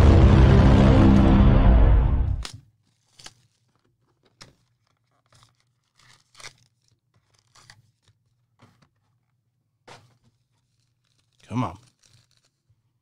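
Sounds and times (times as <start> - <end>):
packaging tearing and crinkling: 2.8 - 8.4, 10.1 - 12.7.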